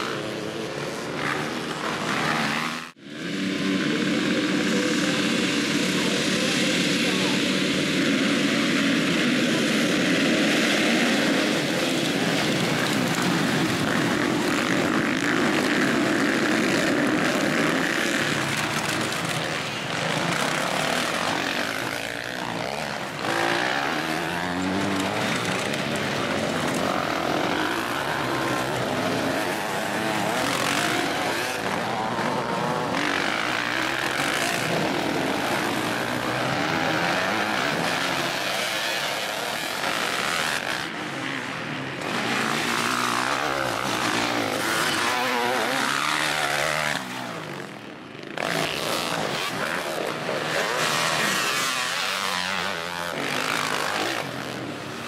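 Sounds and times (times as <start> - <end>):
dirt bikes accelerating: 0.0 - 55.0
motocross bikes engine drone: 0.0 - 55.0.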